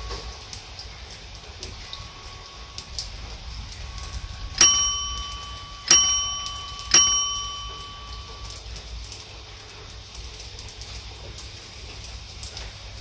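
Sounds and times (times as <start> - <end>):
rain hissing: 0.0 - 13.0
bright bell dings: 4.6 - 8.6.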